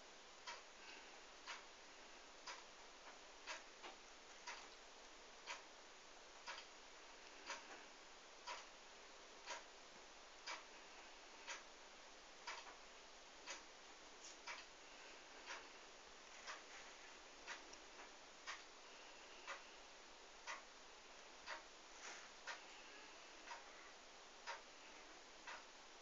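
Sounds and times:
clock ticking: 0:00.4 - 0:00.8, 0:01.4 - 0:01.7, 0:02.4 - 0:04.8, 0:05.4 - 0:05.8, 0:06.4 - 0:08.8, 0:09.4 - 0:09.8, 0:10.4 - 0:11.8, 0:12.4 - 0:13.7, 0:14.4 - 0:16.8, 0:17.4 - 0:19.8, 0:20.4 - 0:20.8, 0:21.4 - 0:21.8, 0:22.4 - 0:23.8, 0:24.4 - 0:24.8, 0:25.4 - 0:25.8.

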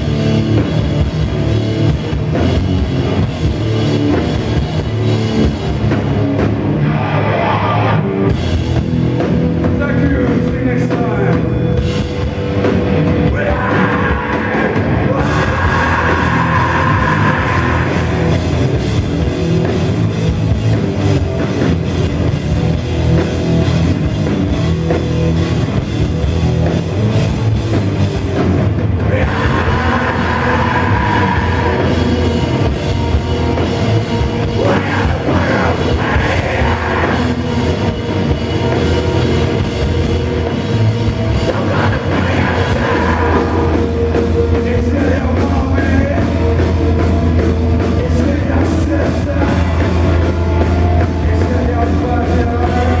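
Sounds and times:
heavy rock band playing: 0:00.0 - 0:53.0
person singing: 0:13.2 - 0:18.5, 0:29.0 - 0:32.8, 0:34.4 - 0:37.8, 0:41.3 - 0:47.0, 0:47.8 - 0:53.0.

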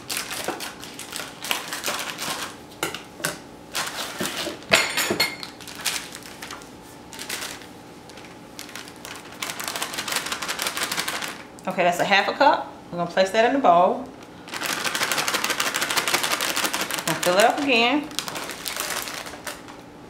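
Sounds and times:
plastic bag crinkling: 0:00.0 - 0:02.6, 0:03.7 - 0:04.7, 0:05.4 - 0:11.5, 0:14.1 - 0:19.8.

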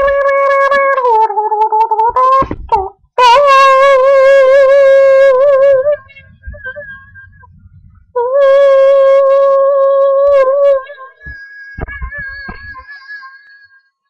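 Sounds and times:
girl singing long notes: 0:00.0 - 0:06.6, 0:08.2 - 0:10.9.

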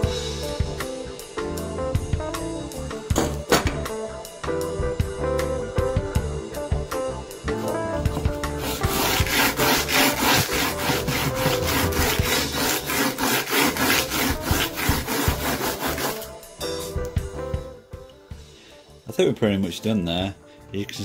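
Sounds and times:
blade scraping on abrasive paper: 0:08.6 - 0:16.4.

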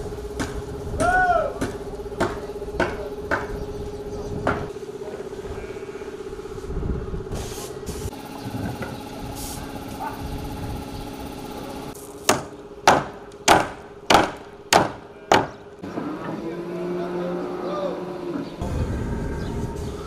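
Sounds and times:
steady hum: 0:00.0 - 0:15.9
hammer blows on wooden boards: 0:00.4 - 0:03.6, 0:04.4 - 0:04.7, 0:12.3 - 0:15.7.

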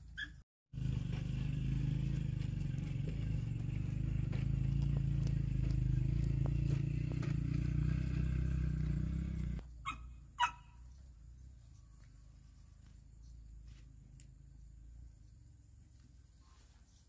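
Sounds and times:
small engine running: 0:00.7 - 0:10.0.

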